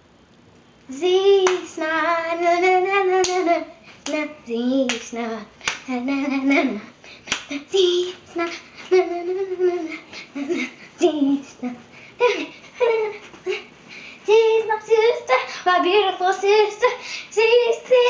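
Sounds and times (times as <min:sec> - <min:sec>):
girl singing wavering notes: 0:00.9 - 0:18.0
hands clapping: 0:01.4 - 0:01.7, 0:03.2 - 0:04.2, 0:04.9 - 0:05.9, 0:07.3 - 0:07.6.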